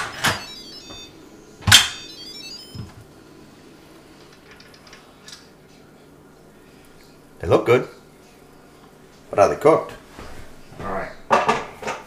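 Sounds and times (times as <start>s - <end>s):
electronic chime of rising notes: 0.0s - 2.9s.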